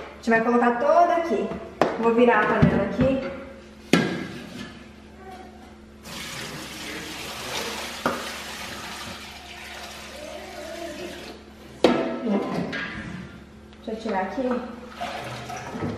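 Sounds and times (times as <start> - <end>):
liquid pouring into a sink: 6.0 - 11.4, 14.9 - 15.9.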